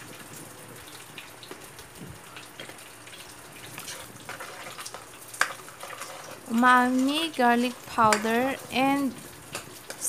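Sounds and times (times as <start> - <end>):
sauce simmering and bubbling: 0.0 - 10.0.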